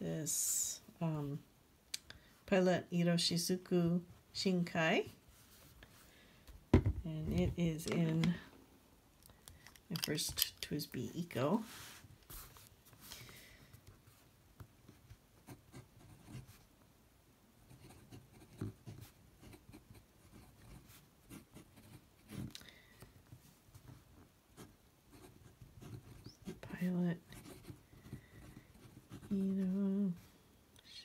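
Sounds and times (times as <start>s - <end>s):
fountain pen scratching on paper: 17.7s - 22.5s, 24.6s - 29.5s.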